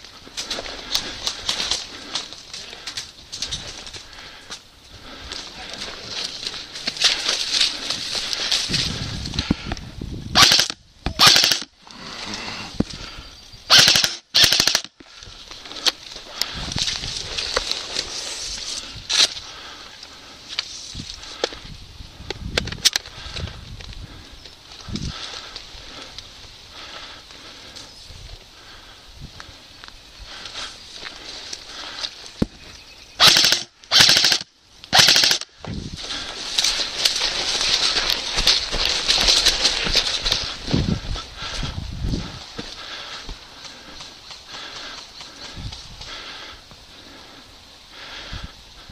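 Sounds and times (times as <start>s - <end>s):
footsteps through tall grass: 0.0s - 9.6s, 15.1s - 19.8s, 35.5s - 46.8s
airsoft rifle full-auto bursts: 10.4s - 11.7s, 13.7s - 14.9s, 33.2s - 35.5s.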